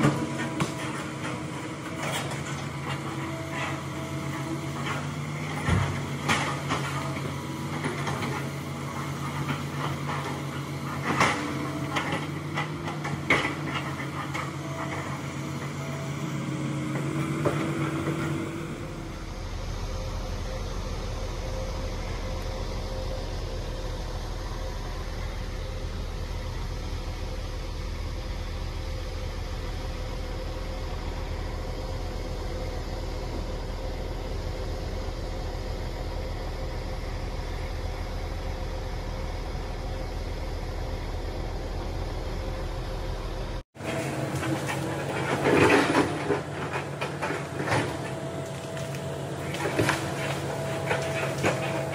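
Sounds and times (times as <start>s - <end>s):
knocks of logs and bucket: 0.0s - 3.8s, 4.8s - 8.5s, 9.3s - 15.8s, 43.8s - 51.9s
excavator diesel engine running: 0.0s - 51.9s
steady low drone: 15.0s - 45.1s
rising whine: 15.2s - 44.4s.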